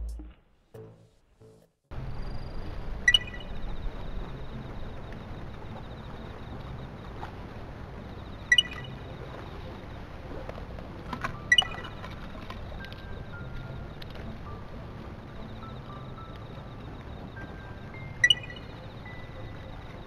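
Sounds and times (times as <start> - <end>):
wind: 1.9 - 20.0.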